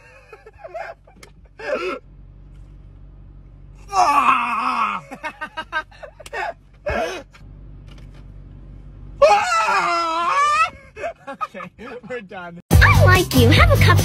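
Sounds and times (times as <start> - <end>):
men laughing: 0.0 - 2.0, 4.4 - 7.4, 9.2 - 12.3
drawn-out groan: 1.6 - 5.2
man crying out: 3.8 - 5.3, 9.2 - 11.3.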